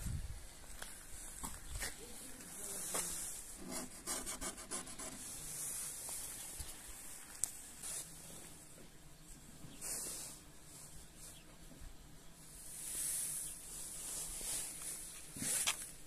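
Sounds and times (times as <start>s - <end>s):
scratchy rubbing and scuffing: 12.7s - 16.0s.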